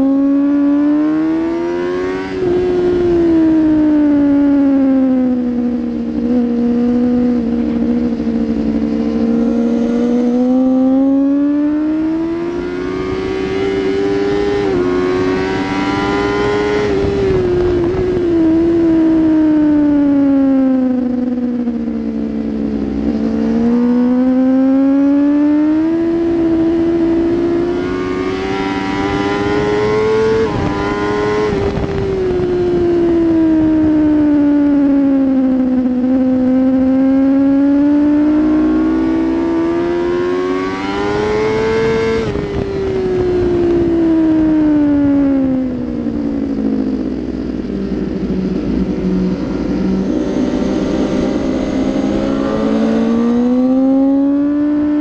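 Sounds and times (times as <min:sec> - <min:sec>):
motorcycle engine revving: 0:00.0 - 0:55.0
wind rushing: 0:47.1 - 0:54.3.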